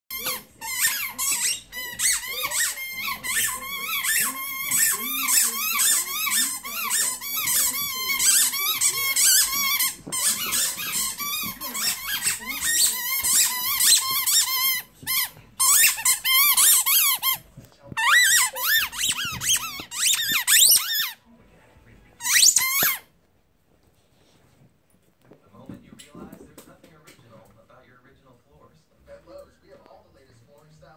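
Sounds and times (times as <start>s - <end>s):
squeaky toy squeaking: 0.1s - 17.4s, 18.0s - 21.2s, 22.2s - 23.1s
dog chewing: 0.1s - 20.8s.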